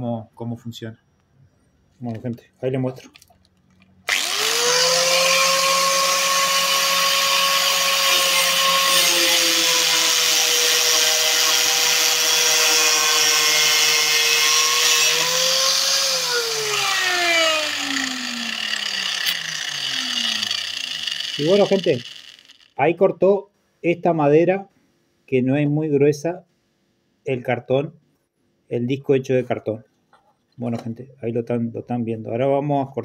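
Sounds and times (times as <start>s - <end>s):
angle grinder whining: 4.1s - 22.8s.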